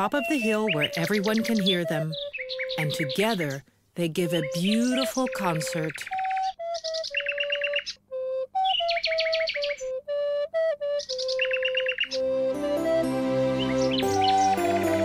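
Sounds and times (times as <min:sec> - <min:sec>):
high trilling bird song: 0:00.0 - 0:10.0, 0:10.8 - 0:15.0
flute melody: 0:00.0 - 0:15.0
music with several instruments: 0:12.1 - 0:15.0.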